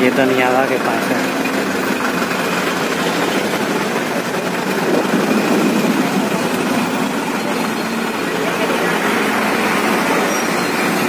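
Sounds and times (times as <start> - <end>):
bus engine rumble: 0.0 - 11.0
road noise: 0.0 - 11.0.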